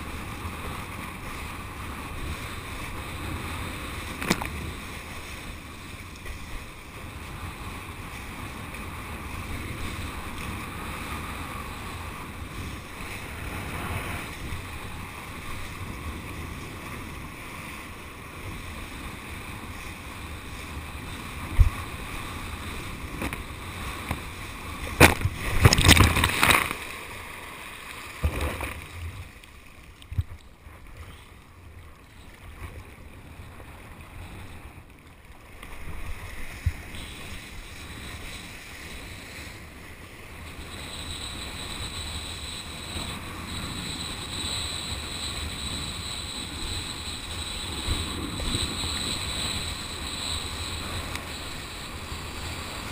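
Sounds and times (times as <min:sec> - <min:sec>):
rush of wind and water: 0:00.0 - 0:52.9
knocks and splashes: 0:24.8 - 0:26.9, 0:28.1 - 0:29.0.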